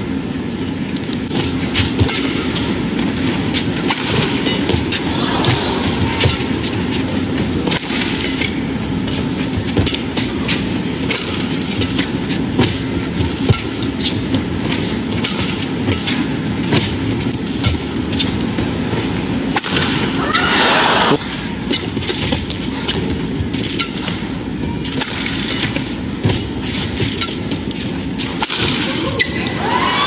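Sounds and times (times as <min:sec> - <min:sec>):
racket striking shuttlecock: 0:01.3 - 0:05.1, 0:05.8 - 0:18.3, 0:19.5 - 0:20.4, 0:21.2 - 0:29.4
arena crowd hubbub: 0:04.8 - 0:09.4, 0:20.1 - 0:21.7, 0:28.4 - 0:30.0.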